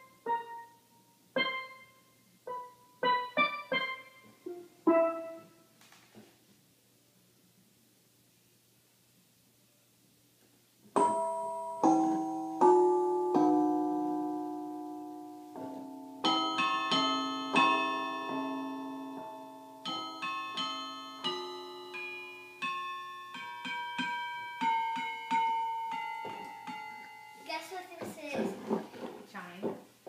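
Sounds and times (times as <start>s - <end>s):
digital keyboard notes: 0.0s - 5.6s, 11.0s - 27.6s.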